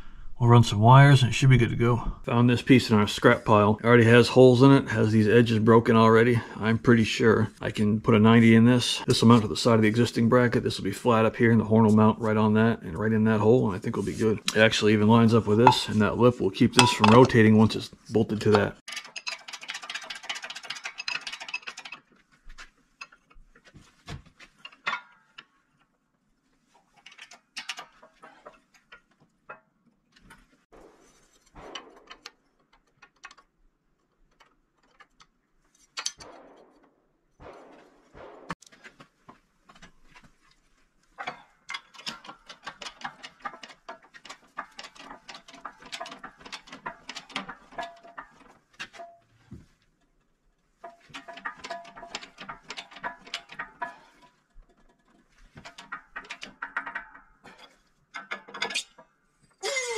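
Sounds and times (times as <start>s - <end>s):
metal scraping: 7.6s - 22.1s, 30.3s - 33.5s
metal clicks and knocks: 14.2s - 26.0s, 26.8s - 30.6s, 31.2s - 59.6s
rapid metal clicking and rattling: 18.5s - 22.3s, 26.8s - 29.2s, 31.2s - 36.8s, 39.7s - 49.5s, 50.7s - 59.0s.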